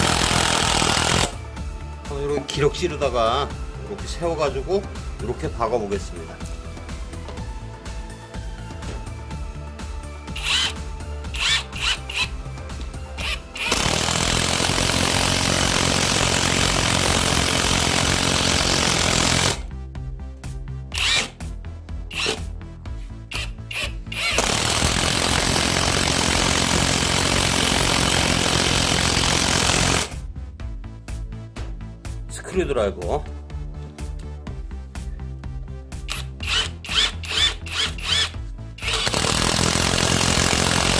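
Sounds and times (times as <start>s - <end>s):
impact wrench driving screw: 0.0s - 1.4s, 10.3s - 12.4s, 13.2s - 19.6s, 20.9s - 21.4s, 22.1s - 22.5s, 23.3s - 30.1s, 36.1s - 40.9s.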